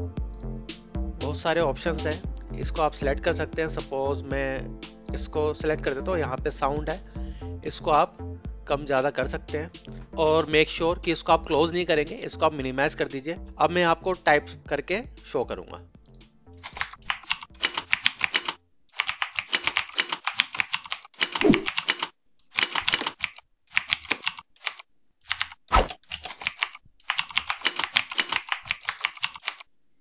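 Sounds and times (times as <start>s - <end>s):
simulated keyboard clicks: 16.6s - 29.7s.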